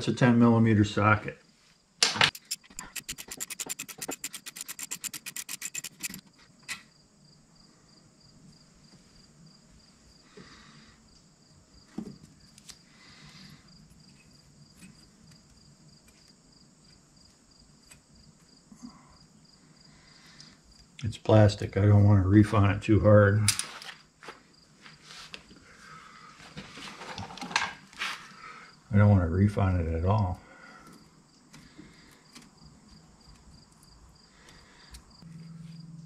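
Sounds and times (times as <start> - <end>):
faint handling of sensor: 2.3 - 6.2
ratchet wrench clicking: 2.3 - 6.2.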